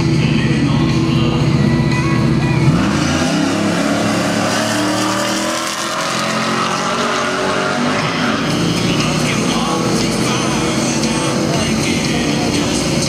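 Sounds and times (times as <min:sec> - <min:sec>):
car engine revving: 0:00.0 - 0:13.0
pickup truck engine revving: 0:00.0 - 0:13.0.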